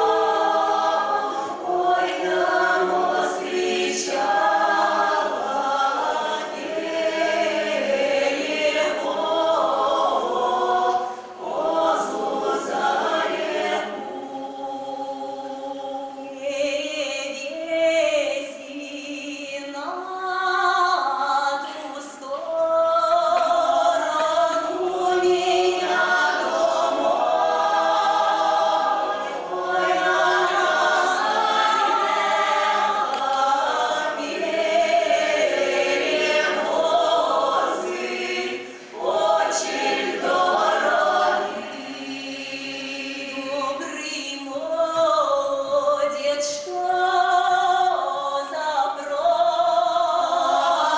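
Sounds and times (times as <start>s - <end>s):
choir singing a folk song: 0.0s - 50.9s.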